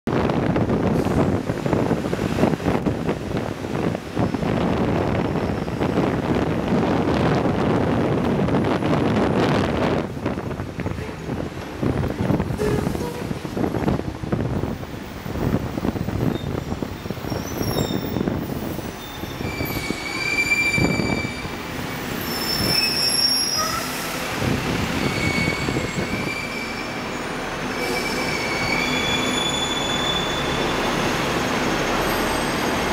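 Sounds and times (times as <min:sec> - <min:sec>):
tram wheels clattering on rail: 0:00.2 - 0:32.9
high wheel squeals: 0:16.1 - 0:24.2, 0:24.8 - 0:32.9.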